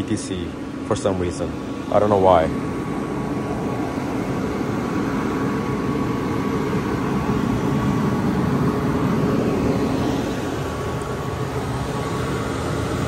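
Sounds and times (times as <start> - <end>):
heat pump whirring hum: 0.0 - 13.0.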